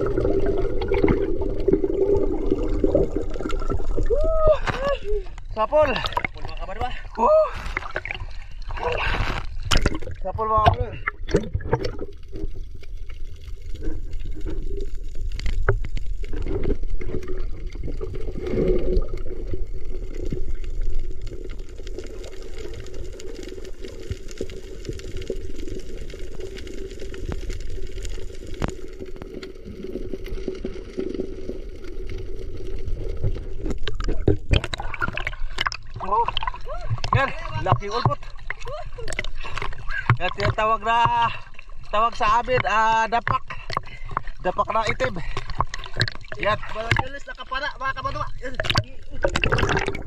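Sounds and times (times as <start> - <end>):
underwater water gurgling: 0.0 - 50.0.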